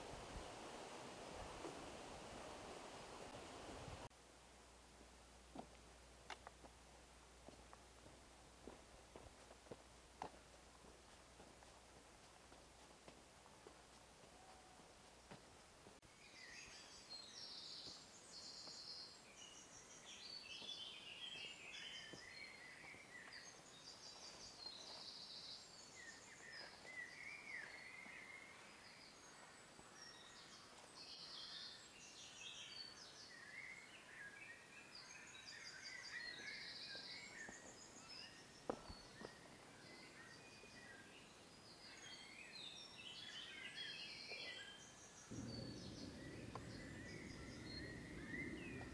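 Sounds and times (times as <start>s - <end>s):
songbirds singing: 16.0s - 48.9s.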